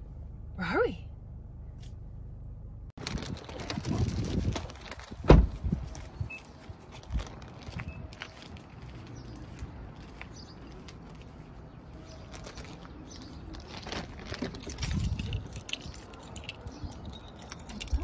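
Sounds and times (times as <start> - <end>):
footsteps on grass and paving: 3.7 - 15.1.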